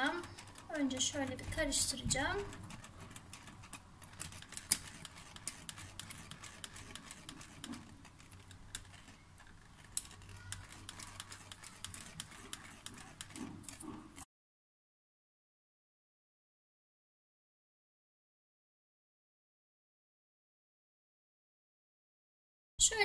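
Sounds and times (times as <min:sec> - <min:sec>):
electric whisk clattering against glass: 0:00.0 - 0:14.2.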